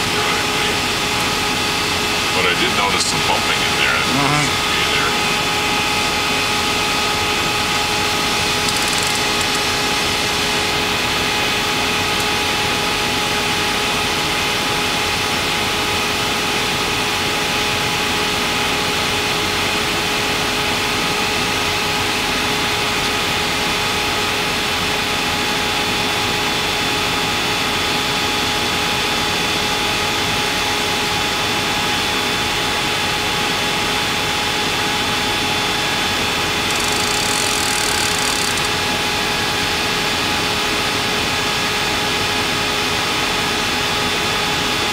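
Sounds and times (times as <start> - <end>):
steady whining tones: 0.0 - 13.3, 36.6 - 39.3.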